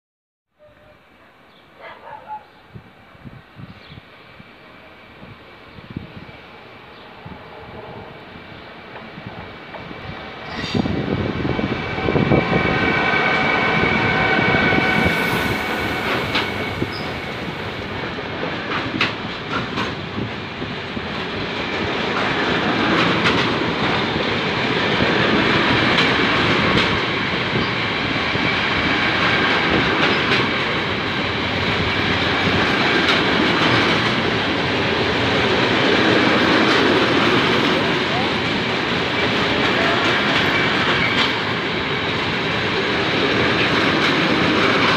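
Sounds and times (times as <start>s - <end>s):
freight train wagons rumbling: 4.2s - 44.9s
wheels clicking over rail joints: 22.0s - 24.1s.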